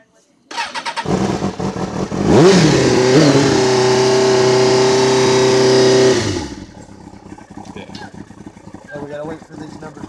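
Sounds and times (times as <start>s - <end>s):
motorcycle engine revving and idling: 0.5s - 10.0s.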